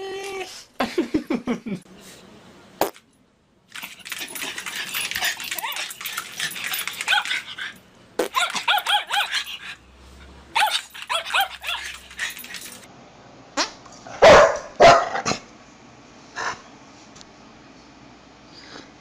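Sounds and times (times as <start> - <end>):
small dog yapping: 8.2 - 9.8, 10.6 - 12.0
lower dog barks: 14.2 - 15.3.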